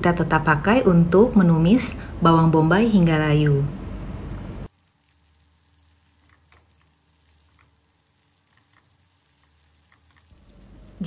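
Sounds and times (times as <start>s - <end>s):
onions sizzling in a pan: 4.7s - 11.0s.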